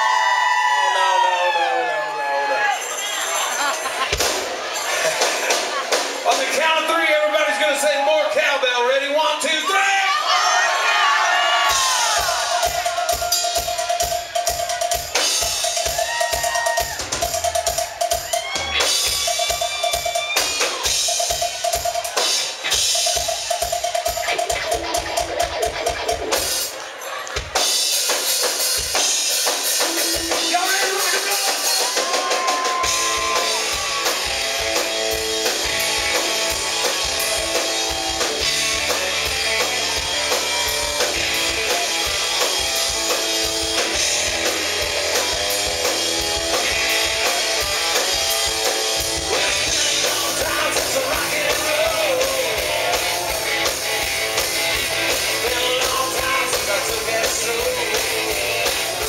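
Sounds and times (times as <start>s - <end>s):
rock band playing loudly: 0.0s - 59.0s
man singing: 49.2s - 53.4s, 55.3s - 59.0s.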